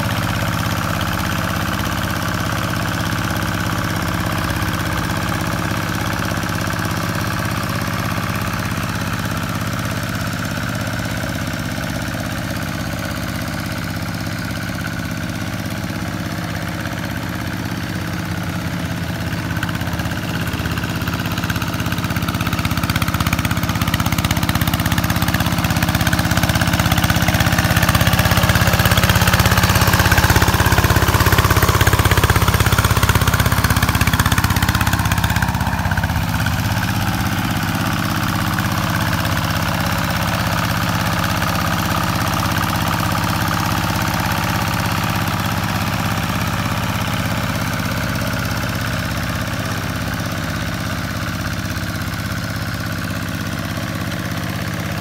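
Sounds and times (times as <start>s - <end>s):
diesel engine chugging: 0.0s - 55.0s.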